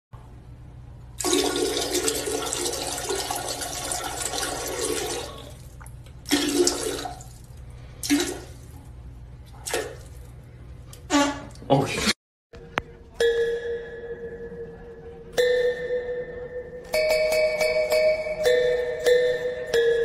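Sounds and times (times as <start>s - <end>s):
dog urinating into toilet water: 1.2s - 8.8s, 9.5s - 10.3s.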